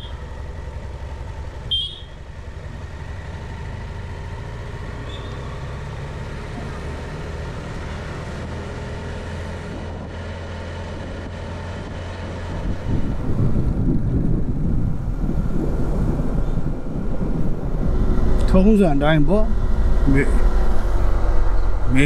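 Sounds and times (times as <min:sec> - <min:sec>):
motorcycle engine running: 0:00.0 - 0:07.0
wind on microphone: 0:10.8 - 0:22.0.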